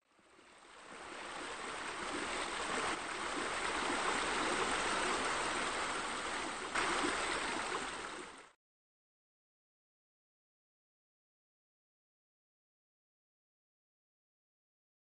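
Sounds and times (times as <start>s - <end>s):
running water rushing: 0.1s - 8.6s.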